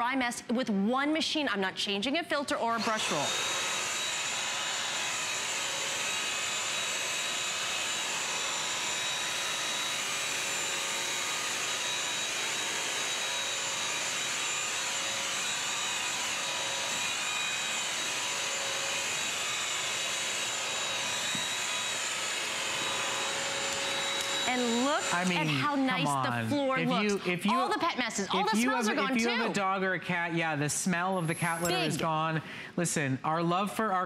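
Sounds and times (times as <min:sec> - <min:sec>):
wet dry vacuum whining: 0:02.8 - 0:27.3.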